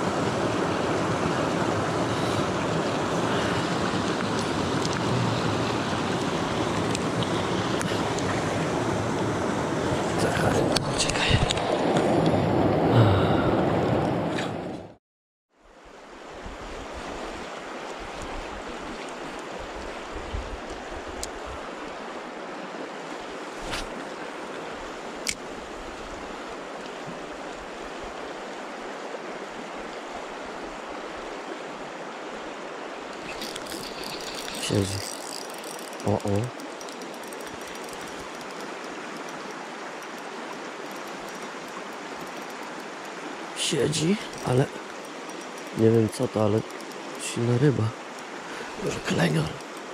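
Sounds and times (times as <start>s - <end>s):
river water rushing: 0.0s - 13.2s, 15.8s - 49.9s
water splashing: 33.0s - 49.9s.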